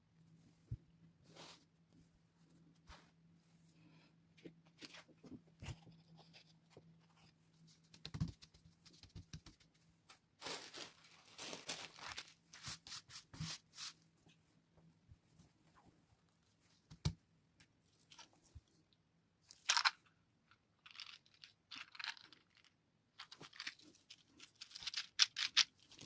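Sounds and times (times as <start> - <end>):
paper rustling: 10.4 - 14.0.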